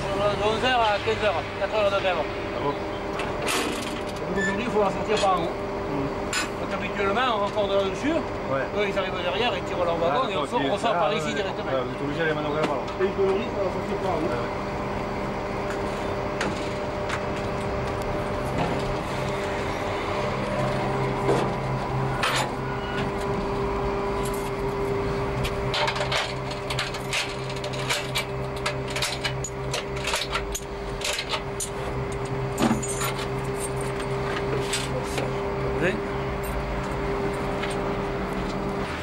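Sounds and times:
mechanical hum with tones: 0:00.0 - 0:39.0.

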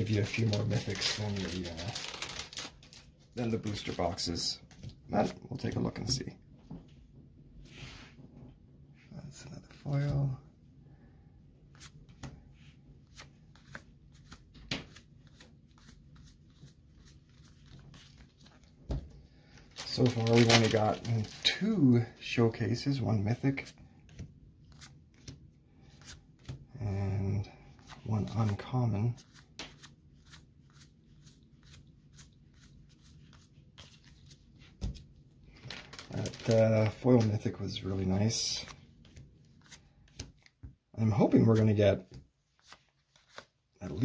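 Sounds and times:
cards flipping and clicking: 0:38.6 - 0:40.6.

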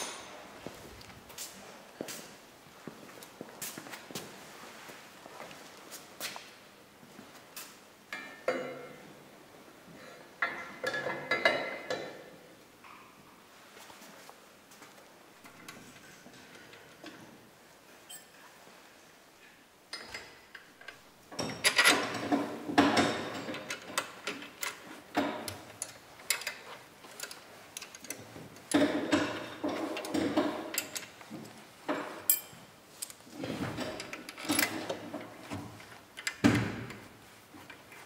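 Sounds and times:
hand tools clinking on bolts: 0:31.9 - 0:33.2.

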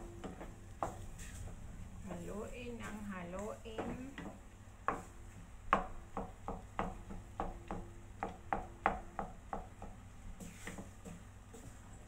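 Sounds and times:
wooden spoon scraping a pot: 0:10.3 - 0:12.0.

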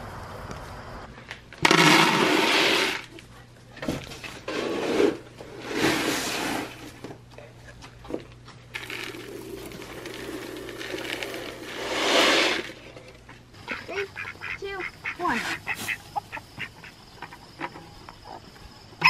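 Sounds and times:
pellets poured into plastic bucket: 0:08.8 - 0:12.8
chickens calling: 0:13.5 - 0:18.6.

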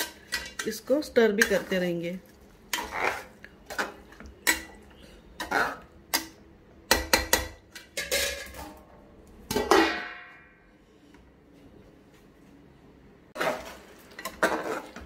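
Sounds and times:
spoon scraping metal pot: 0:02.7 - 0:04.7.

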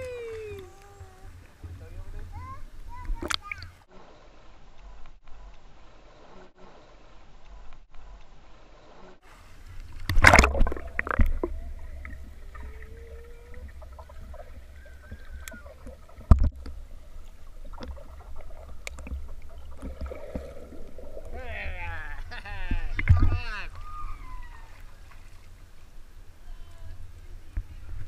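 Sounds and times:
underwater low rumble: 0:06.9 - 0:28.0
muffled water sloshing: 0:09.4 - 0:26.4
splash into pool: 0:10.1 - 0:11.5.

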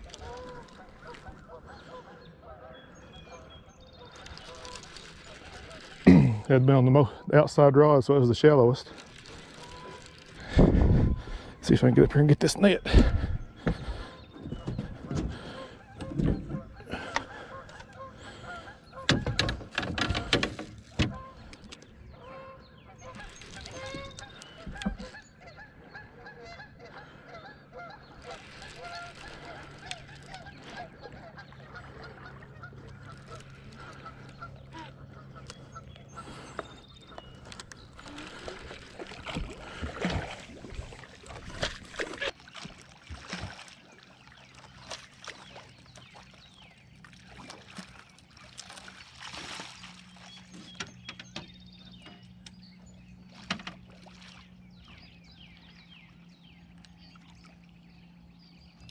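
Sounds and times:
geese honking: 0:00.0 - 0:06.1, 0:08.5 - 0:11.8, 0:12.6 - 0:20.3, 0:20.9 - 0:42.4
low motor hum: 0:08.0 - 0:58.9
knocks and splashes: 0:18.5 - 0:21.5, 0:37.9 - 0:46.3, 0:47.1 - 0:52.4.

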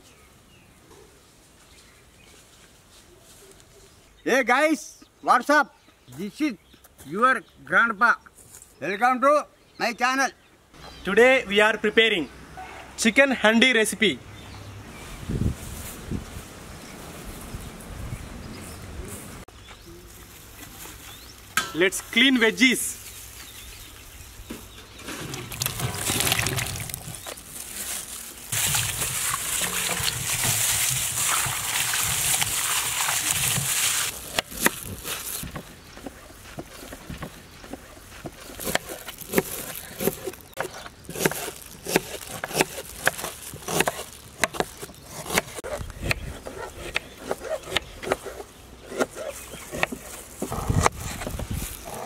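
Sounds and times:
water splashing in steel bowl: 0:25.4 - 0:27.2, 0:28.6 - 0:34.1.

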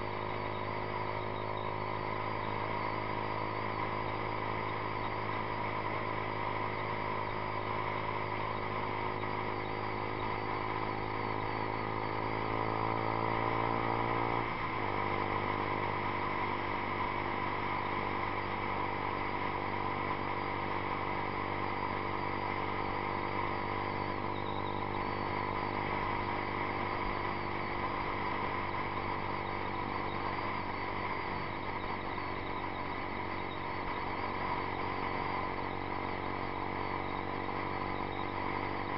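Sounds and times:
motorcycle engine accelerating: 0:00.0 - 0:38.9.

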